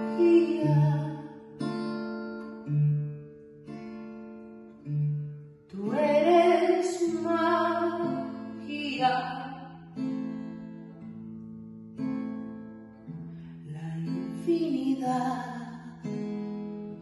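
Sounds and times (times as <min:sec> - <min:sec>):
person singing: 0:00.0 - 0:01.4
plucked acoustic guitar: 0:00.0 - 0:17.0.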